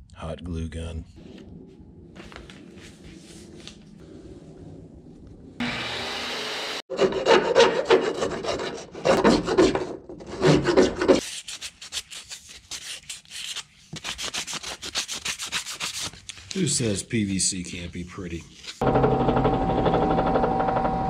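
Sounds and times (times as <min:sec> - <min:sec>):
file rasping on plastic pipe: 0:06.9 - 0:11.2
sandpaper on plastic: 0:10.4 - 0:16.3.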